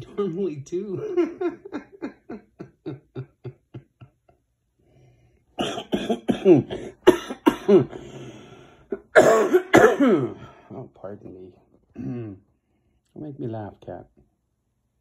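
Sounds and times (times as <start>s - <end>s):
man laughing: 0.0s - 4.4s
man coughing: 1.0s - 3.7s, 5.6s - 8.2s, 8.9s - 10.6s.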